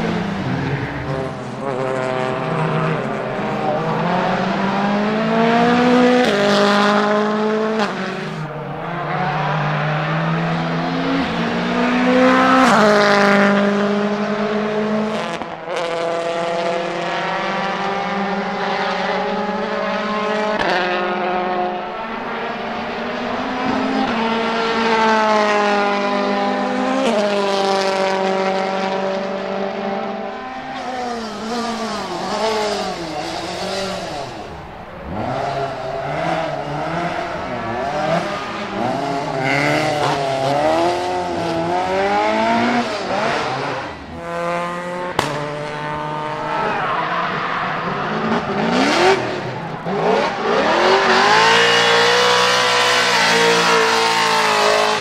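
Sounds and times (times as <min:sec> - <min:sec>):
rally car engines revving: 0:00.0 - 0:55.0.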